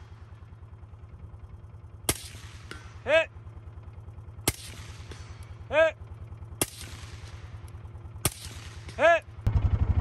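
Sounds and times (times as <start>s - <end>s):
suppressed rifle shots: 2.0s - 3.1s, 4.4s - 5.6s, 6.5s - 9.1s.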